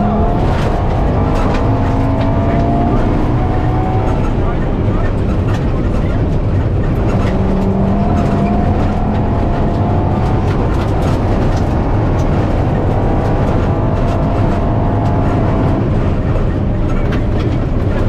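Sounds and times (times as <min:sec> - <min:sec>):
rally car engine accelerating: 0:00.0 - 0:18.0
tyre and road noise: 0:00.0 - 0:18.0.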